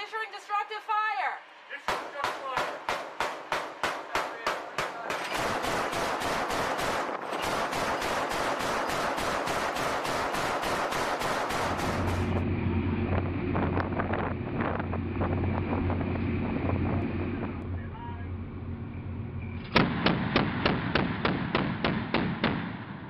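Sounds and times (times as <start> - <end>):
chain gun firing: 1.9 - 12.4
steady low drone: 5.4 - 21.7.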